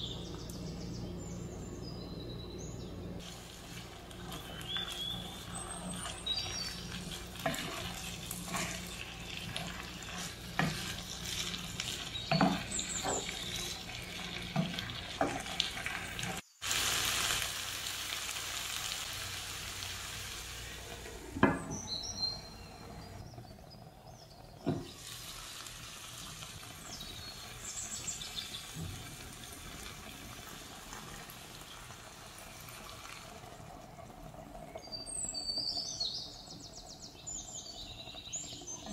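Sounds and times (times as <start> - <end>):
food sizzling: 3.2 - 38.9
spatula scraping and knocking pan: 3.6 - 16.4.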